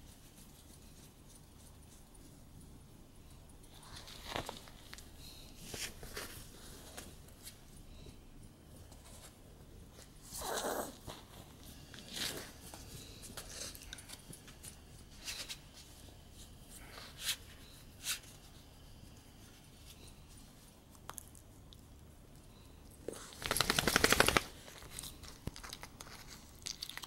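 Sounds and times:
rustling near microphone: 0.0s - 20.9s, 23.0s - 26.6s.

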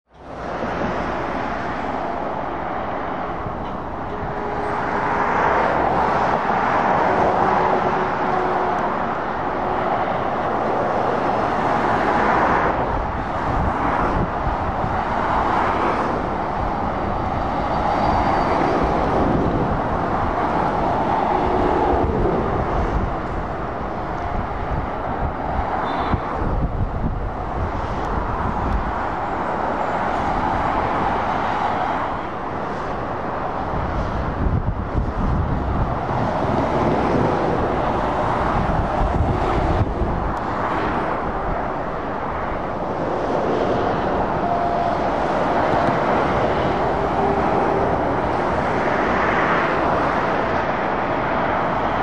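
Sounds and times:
road traffic passing: 0.1s - 52.0s.

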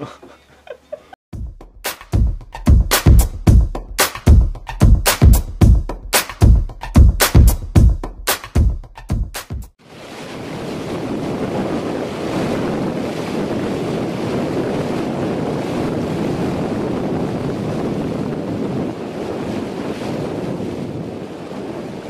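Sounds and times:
water rushing and splashing: 9.8s - 20.6s
wind on microphone: 10.0s - 22.0s.

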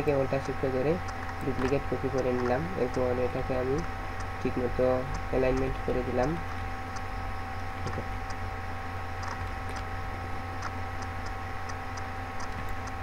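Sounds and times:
low electrical hum: 0.0s - 13.0s
computer mouse clicks: 9.2s - 9.9s, 10.6s - 13.0s.

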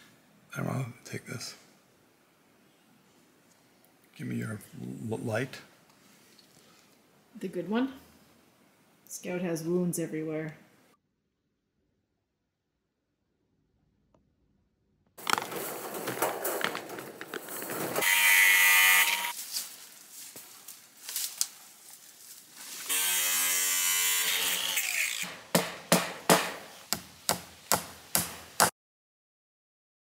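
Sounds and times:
wire mesh rustling and scraping: 15.2s - 18.0s
small power tool running: 18.0s - 19.3s
sharp knocks: 25.3s - 28.7s.

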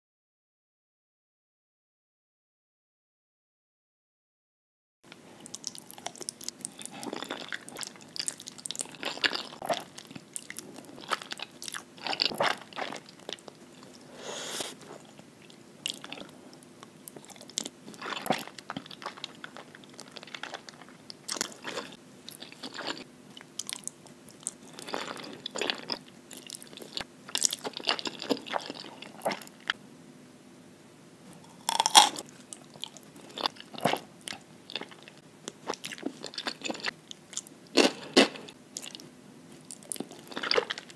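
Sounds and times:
chewing: 5.4s - 29.8s, 31.4s - 40.9s
slurping noodles: 14.1s - 15.0s.

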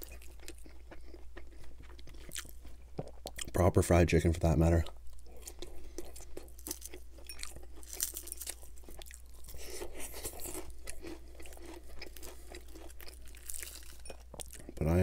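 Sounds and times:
chewing crispy fried chicken: 0.0s - 3.7s, 4.5s - 15.0s
crunching of fried breading: 0.0s - 3.7s, 4.5s - 15.0s.

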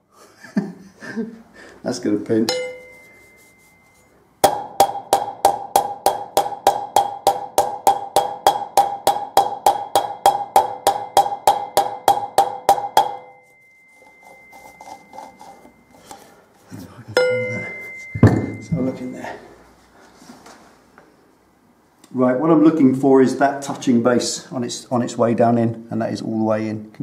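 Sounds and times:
hammer tapping on metal: 2.5s - 3.2s, 4.4s - 13.4s.

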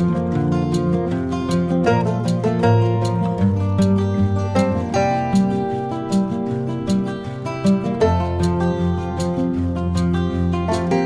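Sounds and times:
plucked acoustic guitar melody: 0.0s - 11.0s.

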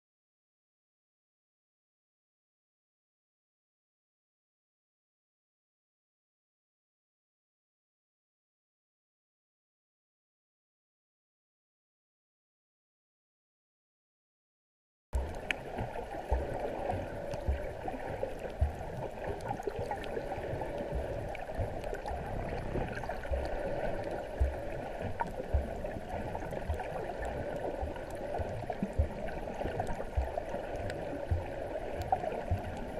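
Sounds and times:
water sloshing and gurgling: 15.2s - 32.9s
water knocking against camera: 18.5s - 20.0s, 24.4s - 25.9s, 27.8s - 30.3s.

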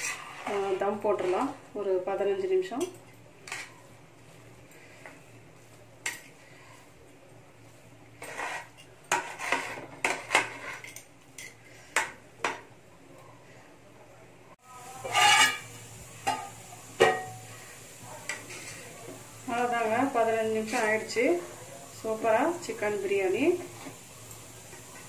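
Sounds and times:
metal spoon scraping metal pot: 0.0s - 1.7s, 2.8s - 3.8s, 8.2s - 11.6s, 15.0s - 16.4s.

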